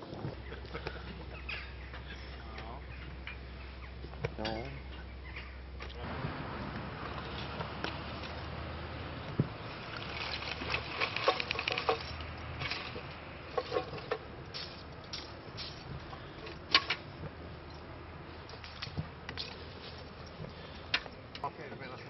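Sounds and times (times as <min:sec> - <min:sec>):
charcoal clattering from metal bucket: 0:09.7 - 0:15.9.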